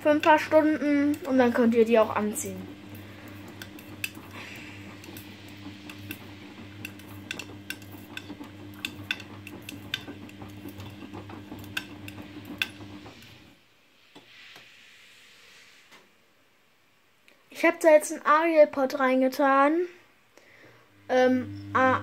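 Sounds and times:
washing machine motor hum: 0.0 - 13.6, 20.8 - 22.0.

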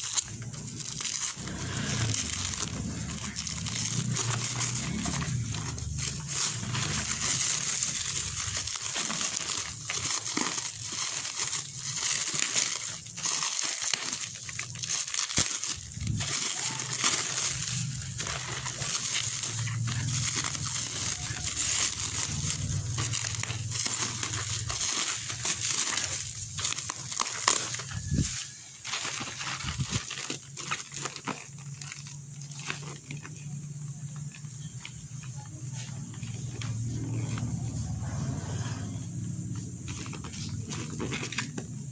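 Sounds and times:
plastic wrap crinkling and tearing: 0.0 - 41.9.

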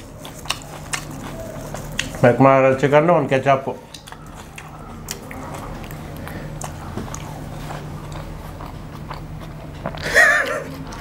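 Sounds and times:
man chewing: 0.0 - 11.0
wet mouth clicks and smacks: 1.9 - 2.2, 3.9 - 7.2
short hum or laugh: 9.9 - 10.8.

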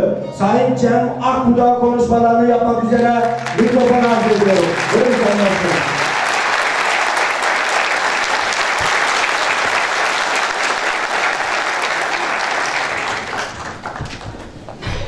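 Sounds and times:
audience applauding: 3.0 - 14.9.

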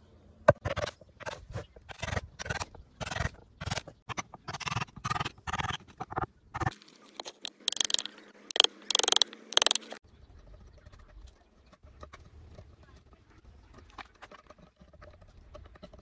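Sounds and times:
hammer tapping wood chisel: 7.4 - 9.8.

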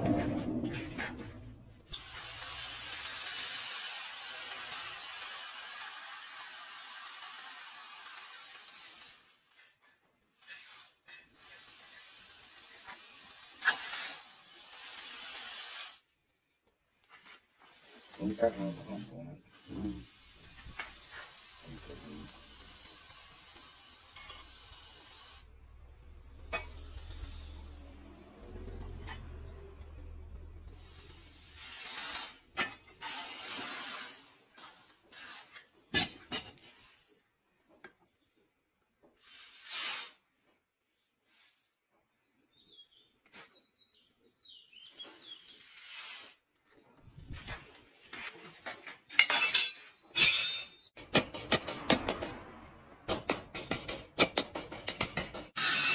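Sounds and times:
hot steel hissing in water: 1.9 - 9.6, 10.3 - 16.1, 17.7 - 25.6, 26.2 - 29.2, 30.7 - 35.7, 39.2 - 40.2, 45.3 - 46.5, 55.6 - 55.9
sharp metallic knocks: 50.2 - 55.6.

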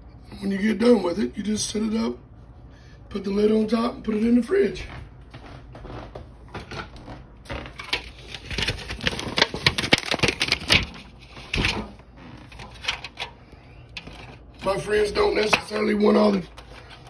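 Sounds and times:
plastic lid crackling and clicking: 7.8 - 11.8.

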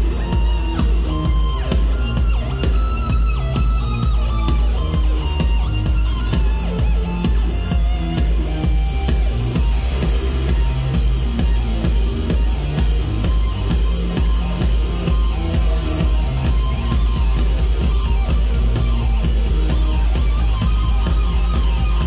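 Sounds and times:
drum kit: 0.0 - 22.0
heavy bass: 0.0 - 22.0
live electronic rock band: 0.0 - 22.0.

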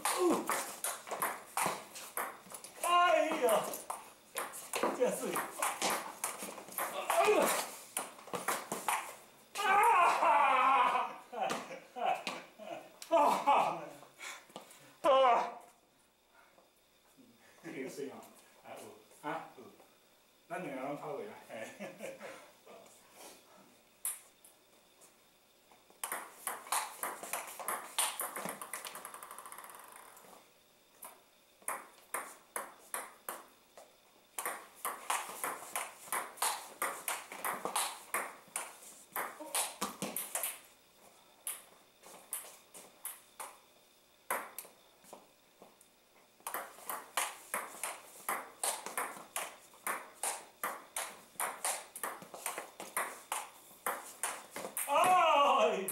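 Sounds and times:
table tennis ball clicking: 26.0 - 30.2, 34.4 - 40.6, 46.4 - 54.9.

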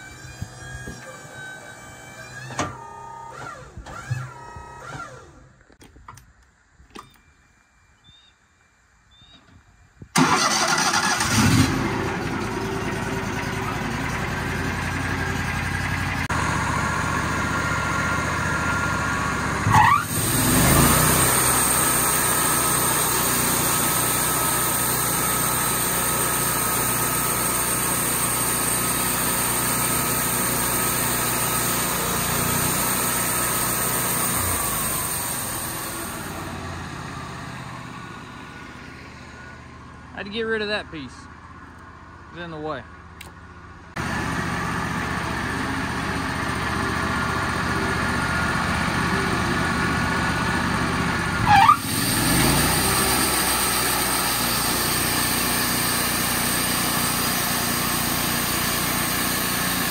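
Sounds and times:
engine starting and running: 0.0 - 7.9, 9.2 - 59.9
engine revving: 10.2 - 39.4, 44.0 - 59.9.

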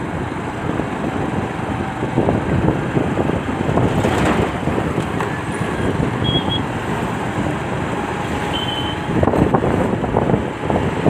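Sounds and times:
passing truck and car traffic: 0.0 - 11.0
road noise: 0.0 - 11.0
short high beeps: 6.2 - 6.7, 8.6 - 9.1.

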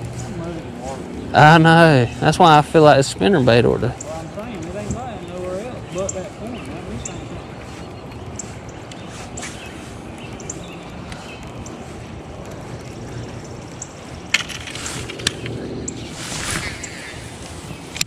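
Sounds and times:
low rumble: 10.8 - 17.6
sharp clicks: 12.4 - 16.0.

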